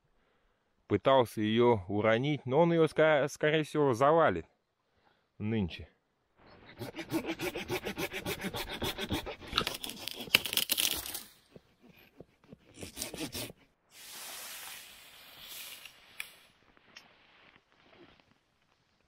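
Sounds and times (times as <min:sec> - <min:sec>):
handsaw cutting wood: 0:06.7 - 0:13.8.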